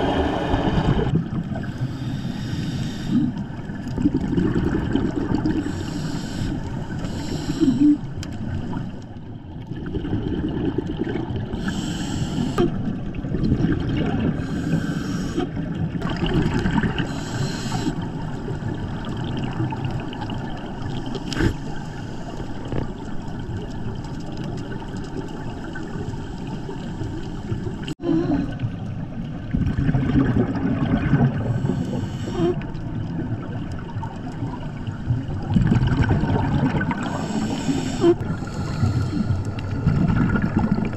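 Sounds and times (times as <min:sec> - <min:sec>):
scuba regulator breathing rumble: 0:01.6 - 0:03.7, 0:05.3 - 0:08.7, 0:11.5 - 0:12.8, 0:14.3 - 0:15.6, 0:17.0 - 0:18.1, 0:31.3 - 0:32.8, 0:36.9 - 0:40.9
exhaled bubbles: 0:02.9 - 0:21.6, 0:27.1 - 0:40.9.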